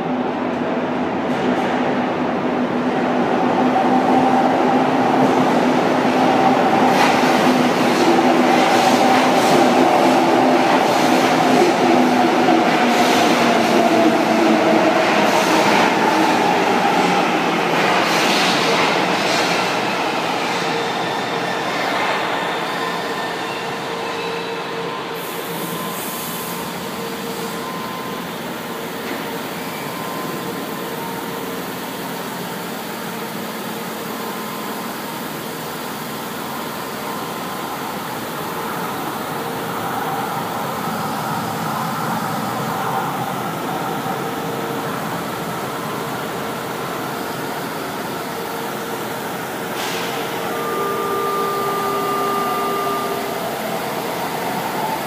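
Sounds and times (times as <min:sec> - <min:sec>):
train wheels rumbling on rail: 0:00.0 - 0:55.0
traction motor whine: 0:50.4 - 0:54.8.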